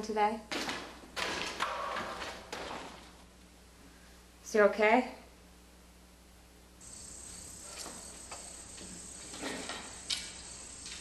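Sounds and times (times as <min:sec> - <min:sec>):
crickets chirring: 0:06.8 - 0:11.0.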